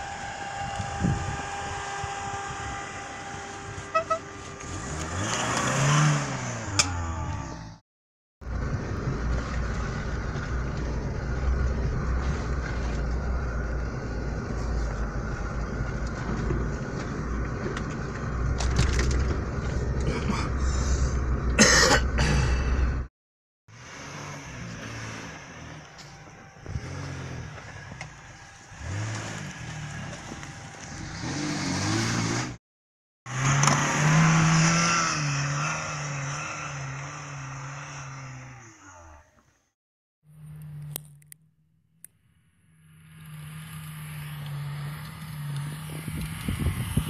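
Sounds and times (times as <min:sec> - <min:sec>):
car engine revving: 0:00.0 - 0:07.8, 0:23.7 - 0:32.6, 0:33.3 - 0:39.0, 0:42.6 - 0:47.0
vehicle engine drone from cab: 0:00.0 - 0:07.8, 0:08.4 - 0:23.1, 0:23.7 - 0:32.6, 0:33.3 - 0:47.0.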